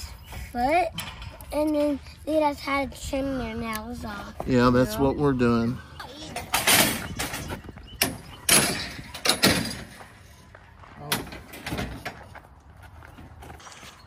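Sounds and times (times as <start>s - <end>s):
metal chute banging and rattling: 6.0s - 10.2s, 11.0s - 12.3s.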